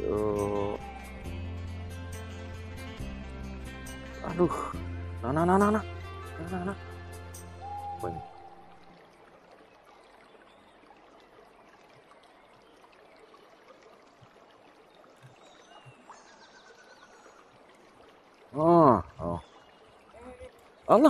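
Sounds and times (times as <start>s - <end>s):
outdoor background noise: 7.6s - 21.0s.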